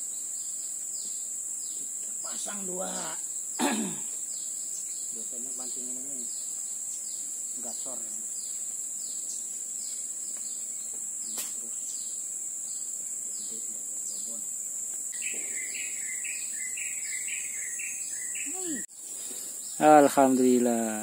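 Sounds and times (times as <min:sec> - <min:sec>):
insects buzzing high-pitched: 0:00.0 - 0:21.0
bird calling repeated notes: 0:15.1 - 0:18.9.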